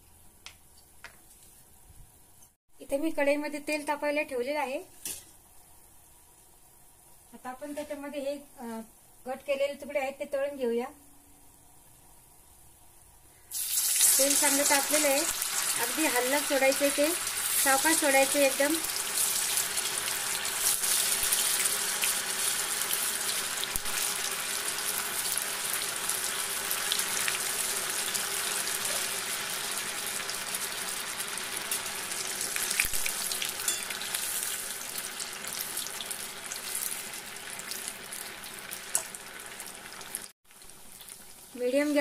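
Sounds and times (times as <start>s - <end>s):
dough deep-frying in oil: 13.5s - 42.0s.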